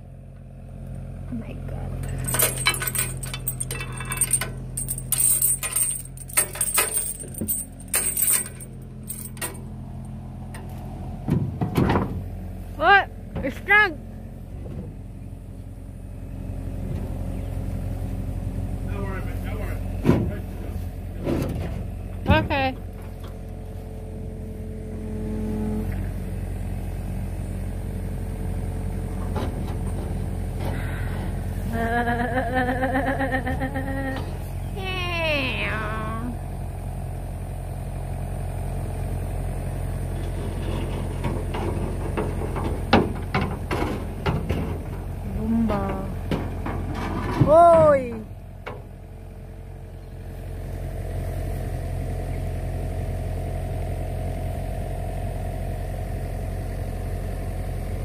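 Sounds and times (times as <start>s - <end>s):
steady low hum: 0.0s - 58.0s
metal chain clinking and rattling: 2.0s - 9.6s.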